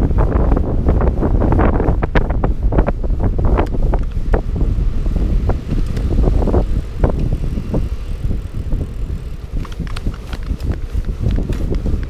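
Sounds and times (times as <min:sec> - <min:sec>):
bike tyres rumbling on tarmac: 0:00.0 - 0:12.0
bike clicks and knocks: 0:03.5 - 0:04.6, 0:05.4 - 0:12.0.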